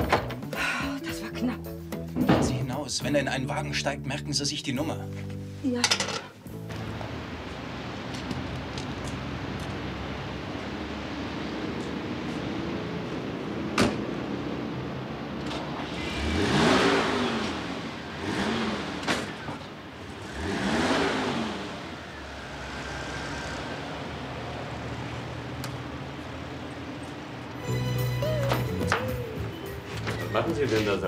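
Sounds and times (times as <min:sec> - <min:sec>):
cars driving past: 0:06.5 - 0:31.0.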